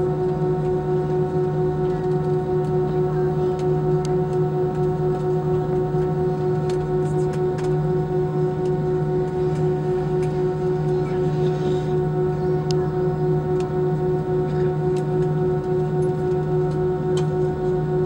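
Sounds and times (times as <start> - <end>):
jet engines idling hum and whine: 0.0 - 18.0.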